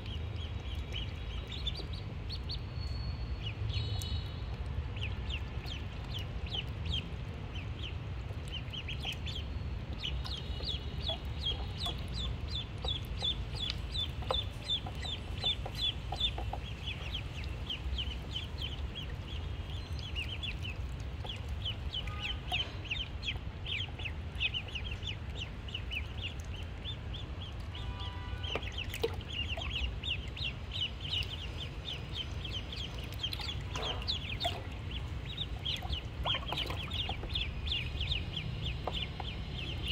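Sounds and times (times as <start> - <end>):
ducklings peeping: 0.0 - 2.7, 3.4 - 39.9
steady low rumble: 29.2 - 39.9.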